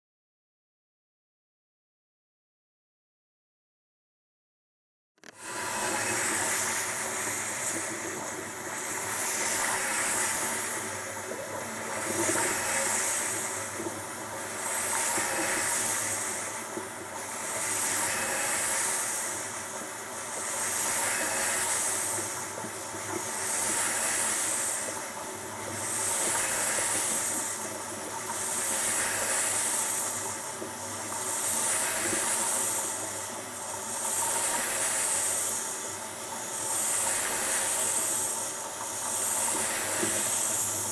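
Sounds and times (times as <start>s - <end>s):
water jet spray hissing: 5.4s - 13.8s.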